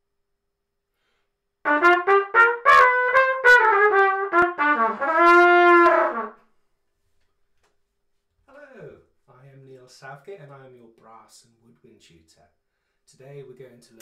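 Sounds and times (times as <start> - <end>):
trumpet playing melody: 1.6 - 6.4.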